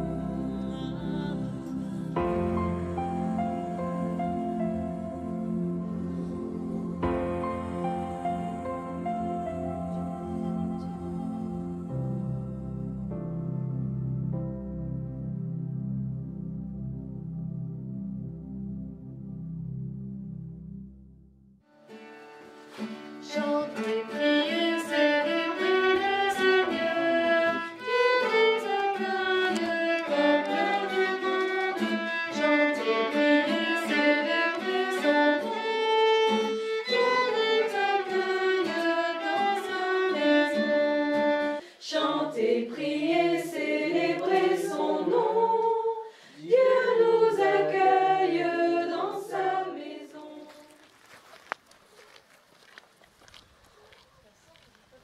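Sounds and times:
people singing: 0:00.0 - 0:13.1, 0:23.2 - 0:50.7
acoustic guitar: 0:21.6 - 0:41.8
violin: 0:21.8 - 0:45.9.

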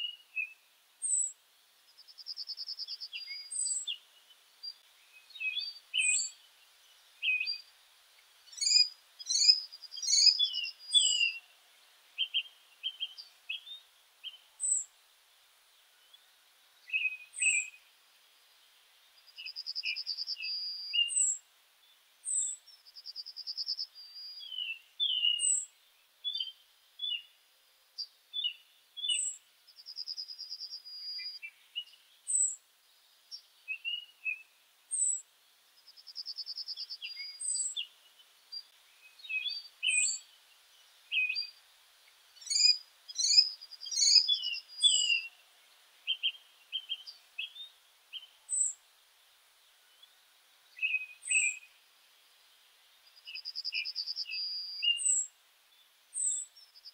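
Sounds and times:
birds chirping and singing: 0:04.6 - 0:06.4, 0:08.5 - 0:11.5, 0:24.0 - 0:25.7, 0:36.7 - 0:40.3, 0:42.4 - 0:45.3.

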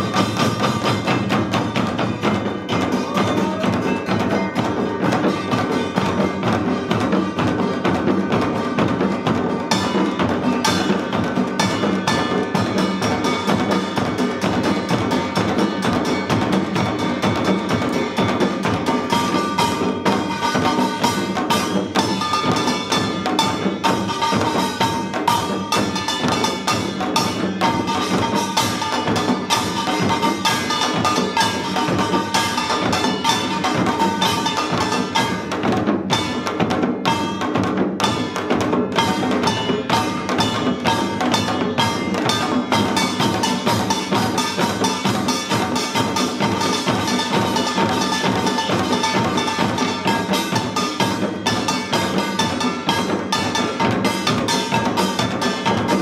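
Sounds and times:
drums playing fast rhythm: 0:00.0 - 0:56.0
small gongs ringing: 0:08.6 - 0:56.0.

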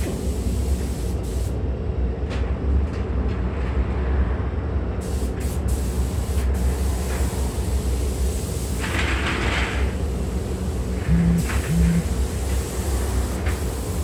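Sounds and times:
spray gun hissing: 0:00.0 - 0:01.6, 0:05.0 - 0:08.8, 0:09.8 - 0:14.0
steady low rumble: 0:10.0 - 0:14.0.

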